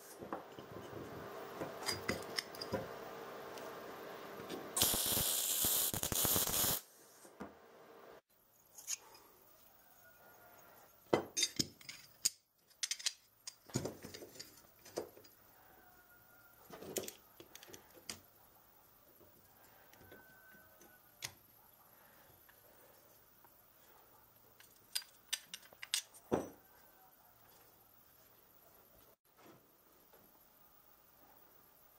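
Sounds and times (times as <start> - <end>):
metal tools clicking and clinking: 1.8 - 2.8, 11.3 - 15.3, 24.6 - 26.6.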